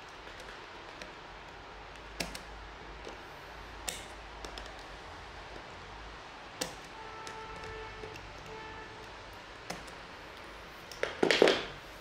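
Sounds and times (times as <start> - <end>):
sharp metallic clicks: 0.0 - 3.2, 3.8 - 5.0, 6.6 - 11.2
faint steady hiss: 0.0 - 12.0.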